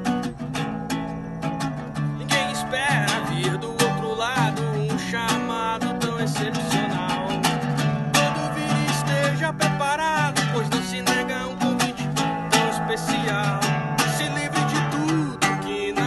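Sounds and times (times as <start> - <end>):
acoustic guitar strumming: 0.0 - 16.0
man singing: 2.2 - 16.0.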